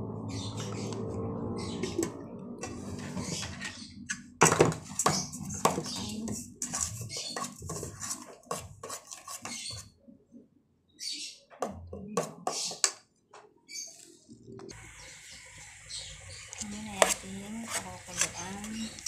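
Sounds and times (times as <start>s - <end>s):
metal spoon scraping a pot: 1.8s - 3.9s, 4.8s - 9.8s, 16.5s - 19.0s.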